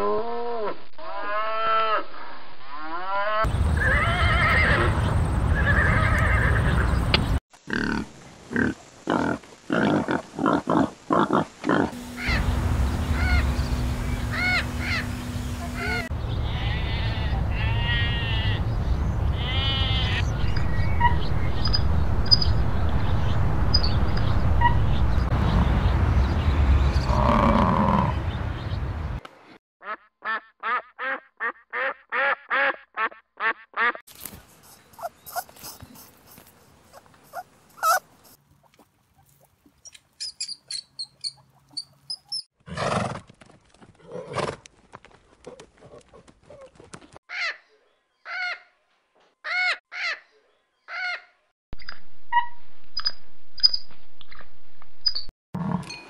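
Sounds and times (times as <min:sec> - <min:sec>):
steady low hum: 0:11.9 - 0:17.5
parrot calls: 0:36.9 - 0:38.0.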